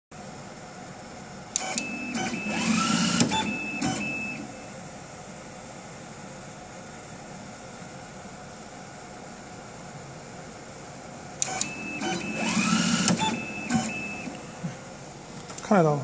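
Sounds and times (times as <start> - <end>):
steady low hum: 0.2 - 16.0
motor whine rising in pitch: 1.6 - 4.6, 11.4 - 14.7
machine sharp clicks: 11.4 - 14.4.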